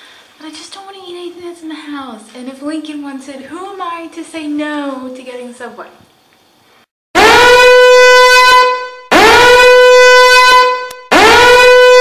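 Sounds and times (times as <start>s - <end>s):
air horn blasts: 7.2s - 12.0s.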